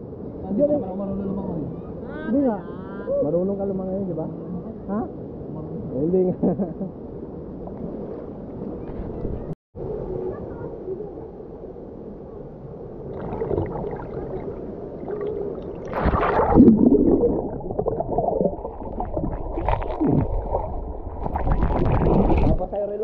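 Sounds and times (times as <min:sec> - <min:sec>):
water splash: 0:13.1 - 0:22.8
muffled underwater gurgling: 0:13.1 - 0:23.0.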